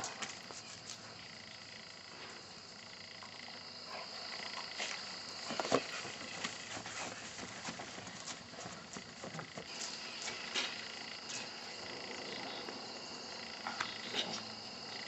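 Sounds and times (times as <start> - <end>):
insects chirring: 0.0 - 15.0
footsteps on grass: 4.8 - 10.6.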